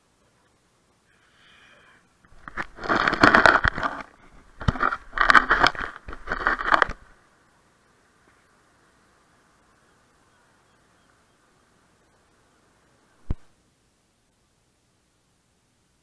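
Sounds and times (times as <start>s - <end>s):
camera handling scraping and crackling: 2.3s - 7.1s.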